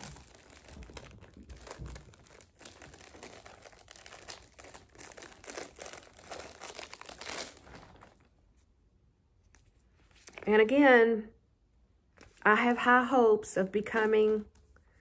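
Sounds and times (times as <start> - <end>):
packaging crinkling: 0.0 - 8.3.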